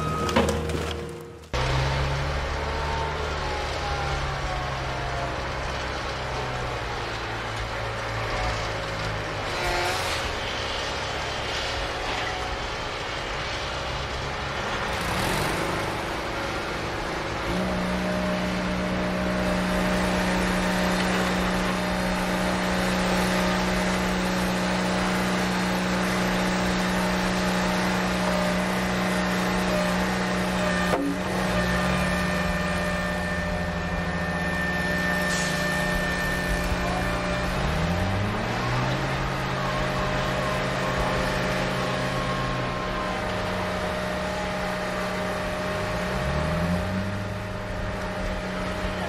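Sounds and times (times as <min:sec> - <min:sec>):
vehicle engine running: 0:12.6 - 0:49.0.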